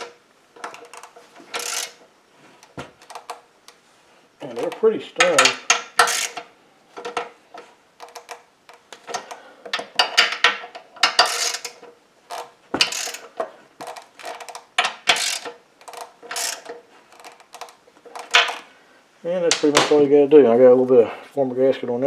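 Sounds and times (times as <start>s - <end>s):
socket ratchet clicking: 0.0s - 2.0s, 5.3s - 7.2s, 8.0s - 18.6s.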